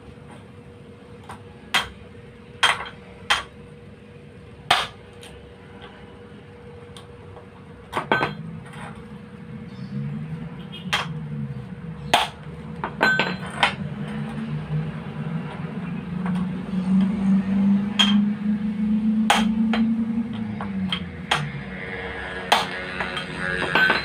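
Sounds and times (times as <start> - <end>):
low wavering hum: 0.0 - 24.0.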